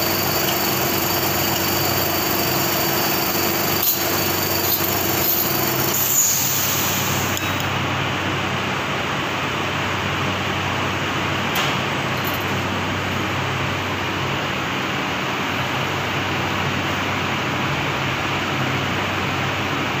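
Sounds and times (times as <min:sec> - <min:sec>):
machine hum: 0:00.0 - 0:08.2
factory machinery drone: 0:00.0 - 0:20.0.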